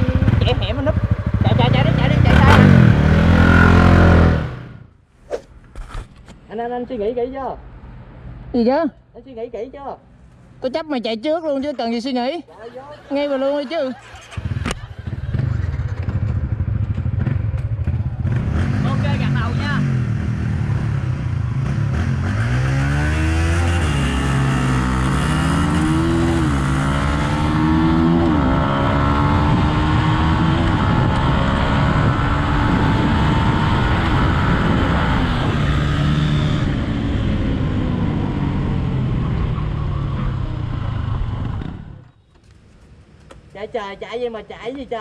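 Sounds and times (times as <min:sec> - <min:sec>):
motorcycle engine accelerating: 0:00.0 - 0:04.9, 0:14.0 - 0:42.1
wind on microphone: 0:29.3 - 0:39.3.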